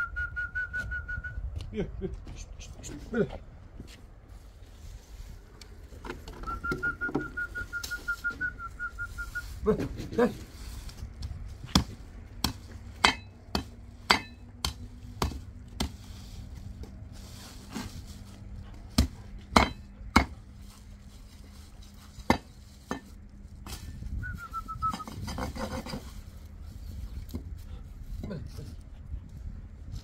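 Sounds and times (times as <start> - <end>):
short falling whistle: 0.0 - 1.4, 6.4 - 9.5, 24.2 - 25.1.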